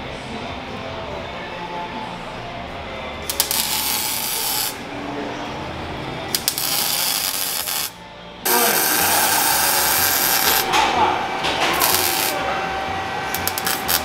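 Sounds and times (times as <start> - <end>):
welding crackling sizzle: 3.2 - 4.8, 6.3 - 10.8, 11.4 - 12.6, 13.3 - 14.0.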